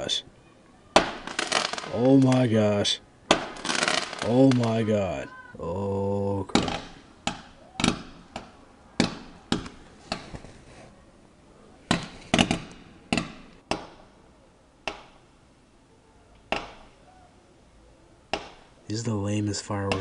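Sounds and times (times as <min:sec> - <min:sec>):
fireworks bangs: 0:00.9 - 0:04.9, 0:06.5 - 0:08.4, 0:11.9 - 0:13.7.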